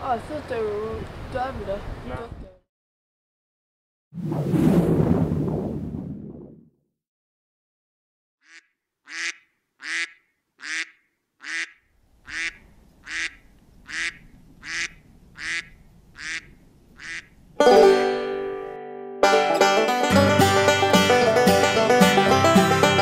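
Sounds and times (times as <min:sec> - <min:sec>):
duck quacking: 0:08.4 - 0:17.4
banjo music: 0:17.6 - 0:23.0
musical chord ringing: 0:17.6 - 0:23.0.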